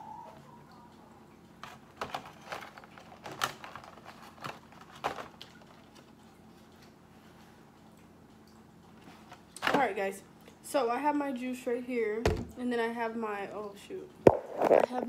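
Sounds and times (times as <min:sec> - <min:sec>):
shells and foil pan crackling: 0:01.6 - 0:06.2.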